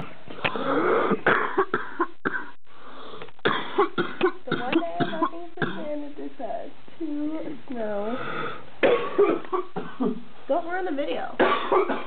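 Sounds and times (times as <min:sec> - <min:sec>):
person coughing: 0:00.0 - 0:02.5, 0:08.8 - 0:10.2, 0:11.4 - 0:12.0.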